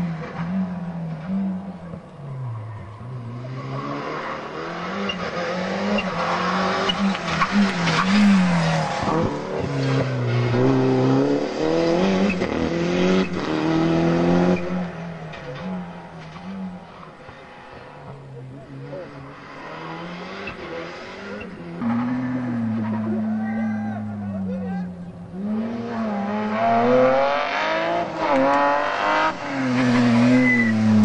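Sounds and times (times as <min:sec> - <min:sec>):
rally car engine revving: 0:00.0 - 0:31.0.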